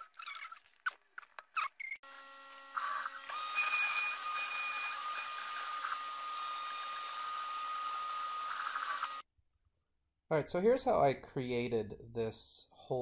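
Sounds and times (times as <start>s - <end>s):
router spindle whining: 2.0s - 9.2s.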